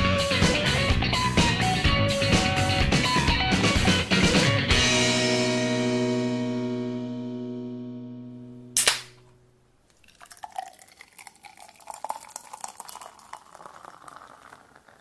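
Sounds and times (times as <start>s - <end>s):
music: 0.0s - 8.8s
sharp click: 8.8s - 9.3s
drink pouring into glass: 9.9s - 15.0s.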